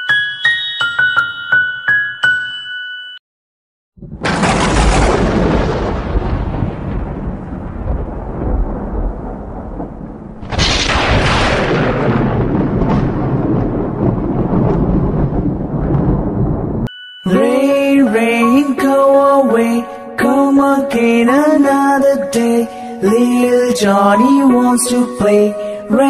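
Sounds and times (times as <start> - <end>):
rolling thunder: 4.0 - 16.9
thunderclap: 4.0 - 16.9.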